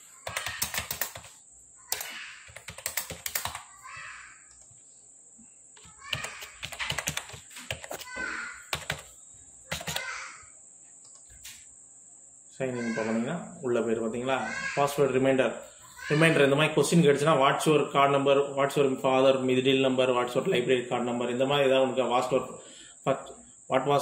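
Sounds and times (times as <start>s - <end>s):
keyboard typing: 0.2s - 3.7s, 5.8s - 10.2s.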